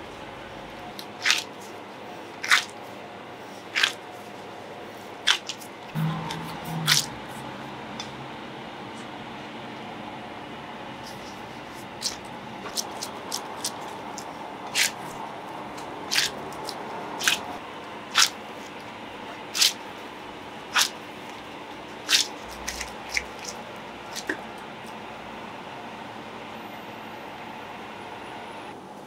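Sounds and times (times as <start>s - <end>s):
dough kneading slaps: 1.1s - 1.6s, 2.4s - 2.8s, 12.0s - 17.6s, 22.0s - 24.4s.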